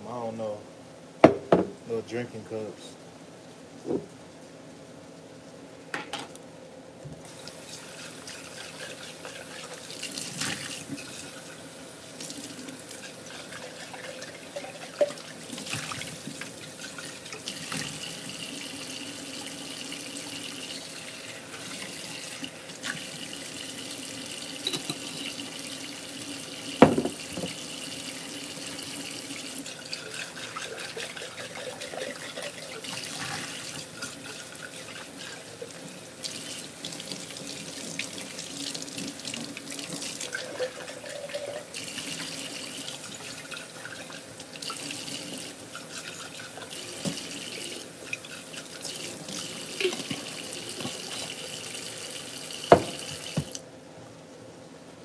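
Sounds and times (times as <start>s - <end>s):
glass jar and lid clinking: 24.6s - 25.3s
tap running into a sink: 26.8s - 27.6s, 47.0s - 47.4s, 52.6s - 53.6s.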